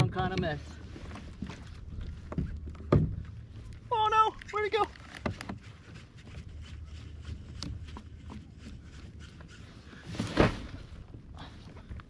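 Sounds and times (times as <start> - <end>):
clicks and taps of fishing gear: 0.0 - 9.6.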